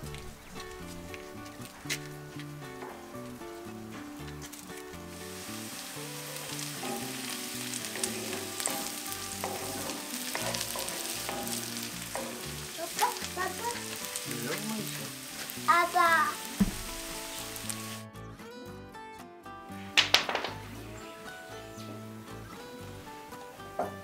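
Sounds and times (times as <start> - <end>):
onions sizzling in oil: 0.0 - 18.0, 20.0 - 24.0
spatula tapping pan: 5.2 - 15.6.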